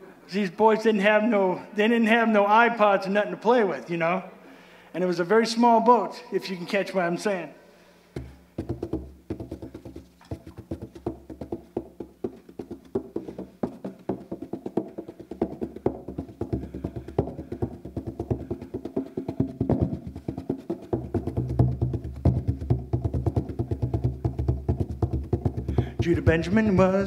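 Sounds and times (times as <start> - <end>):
steady sharp knocking beat: 8.2 - 27.0.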